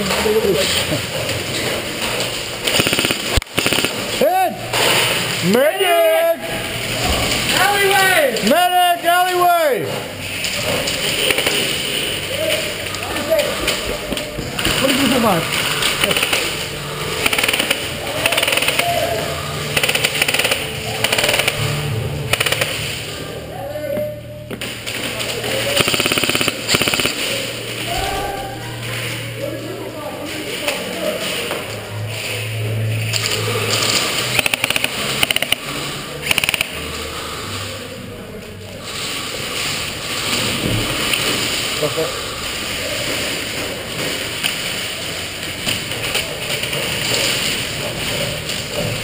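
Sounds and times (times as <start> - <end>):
airsoft guns firing bursts: 2.6 - 4.2, 14.8 - 23.0, 25.6 - 27.7, 34.2 - 36.9.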